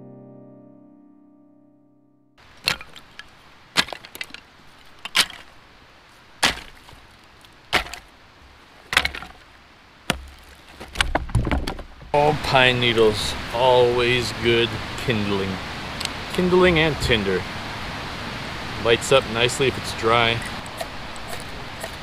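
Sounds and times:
rustling handling: 2.5s - 12.0s
dry sticks snapping: 2.6s - 5.6s, 6.4s - 8.1s.

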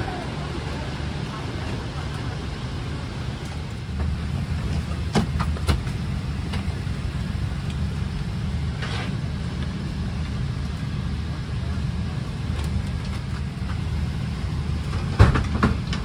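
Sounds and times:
cabin air conditioning hum: 0.0s - 16.0s.

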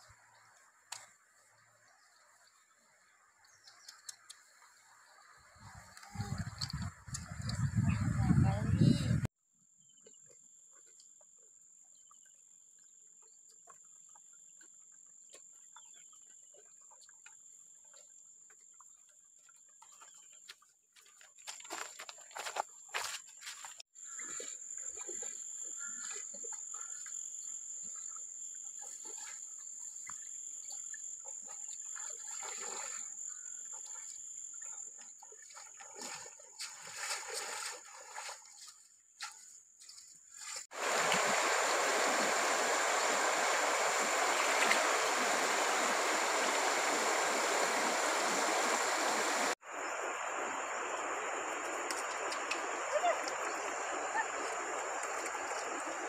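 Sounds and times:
splashing in shallow stream: 13.5s - 56.0s
footsteps on gravel: 21.0s - 23.8s
river water rushing over rocks: 40.7s - 49.6s.

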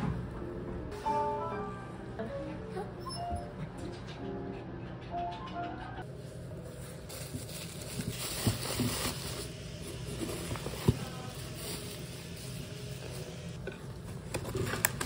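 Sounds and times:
bubble wrap and foil crinkling: 6.1s - 13.5s.

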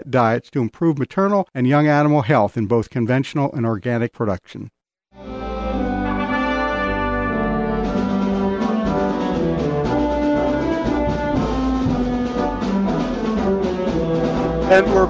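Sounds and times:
brass-led orchestral music: 5.1s - 15.0s.

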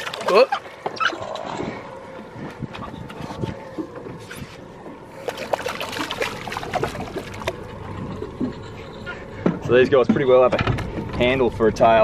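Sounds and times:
water trickling and splashing: 0.0s - 1.8s, 5.1s - 9.3s
fish knocking and slapping: 5.2s - 8.6s.

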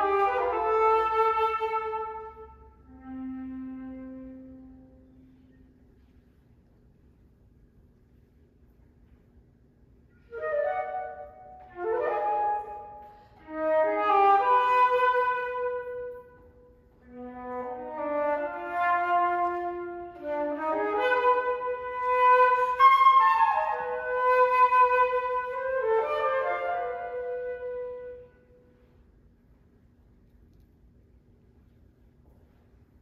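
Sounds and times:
solo flute melody: 0.0s - 6.1s, 10.1s - 29.0s.

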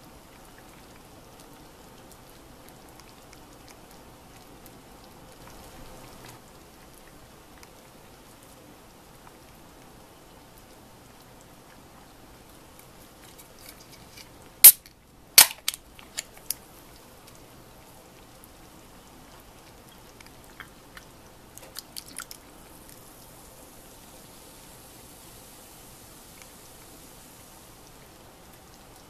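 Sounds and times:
can ring-pull opening: 14.6s - 16.3s.

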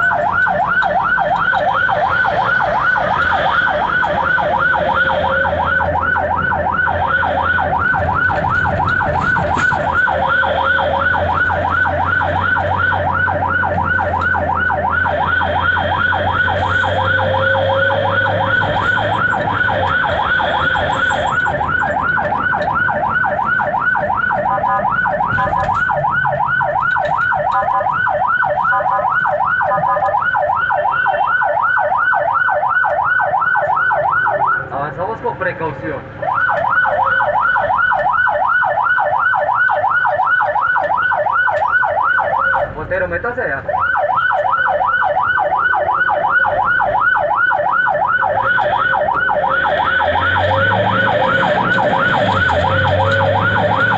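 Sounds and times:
ambulance siren yelp: 0.0s - 53.9s.

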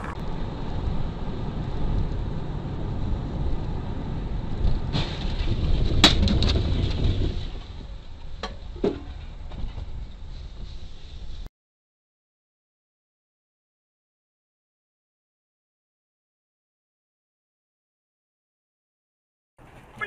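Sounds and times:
car road and engine rumble: 0.0s - 11.5s, 19.6s - 20.0s.

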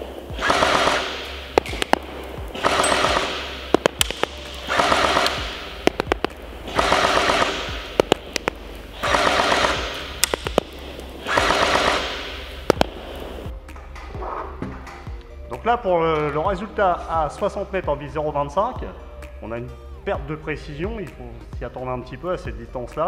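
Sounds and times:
airsoft gun firing bursts: 0.0s - 13.5s
sharp single clicks: 0.4s - 13.2s.

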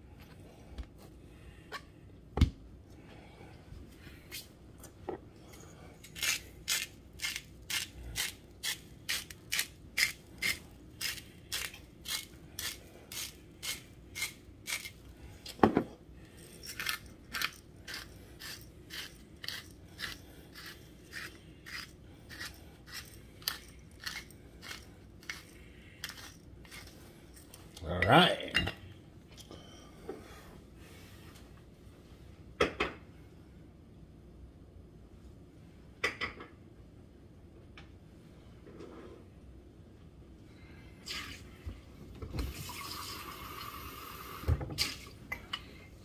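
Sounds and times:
salt and pepper grinders crunching: 6.0s - 15.1s, 16.3s - 27.7s.

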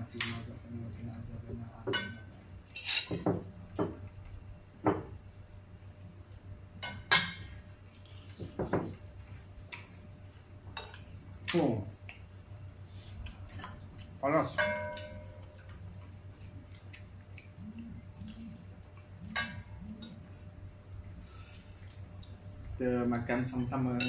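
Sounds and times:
cutlery clinking on ceramic plate: 14.6s - 15.6s.

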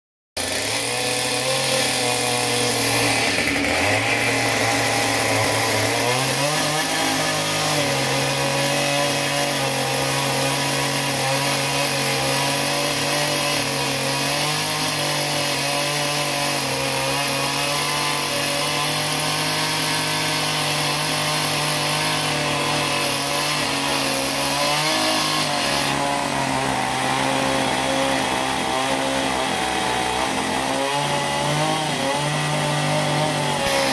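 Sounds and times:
chainsaw cutting wood: 0.4s - 33.9s.

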